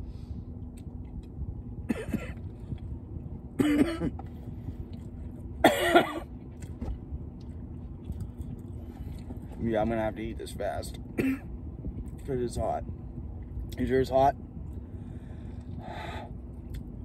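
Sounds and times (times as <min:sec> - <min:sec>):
person clearing throat: 0:01.9 - 0:02.4, 0:03.6 - 0:04.2, 0:05.6 - 0:06.3, 0:11.2 - 0:11.5
person coughing: 0:01.9 - 0:02.4, 0:03.6 - 0:04.2, 0:05.6 - 0:06.3, 0:11.2 - 0:11.5.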